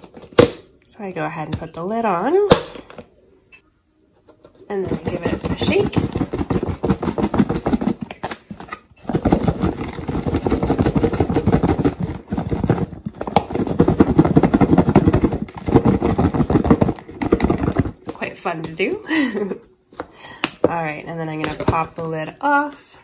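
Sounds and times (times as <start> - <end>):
tofu cubes knocking in shaken container: 4.8 - 8.2, 9.1 - 18.0.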